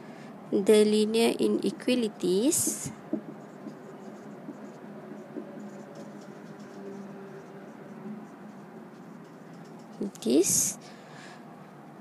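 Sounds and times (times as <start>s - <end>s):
marker scratching on whiteboard: 2.4s - 10.6s.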